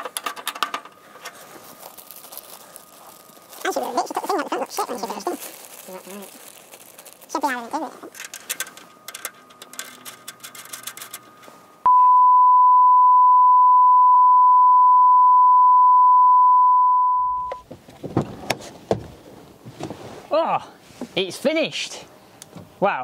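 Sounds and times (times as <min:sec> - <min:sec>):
clicks and rustling: 0:08.0 - 0:11.5
steady electronic bleep: 0:11.9 - 0:17.6.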